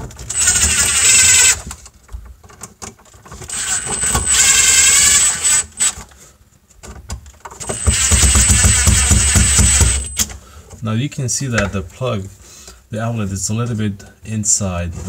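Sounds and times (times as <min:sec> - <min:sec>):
impact driver driving screws: 0:00.2 - 0:01.7, 0:03.4 - 0:06.0, 0:07.6 - 0:10.3.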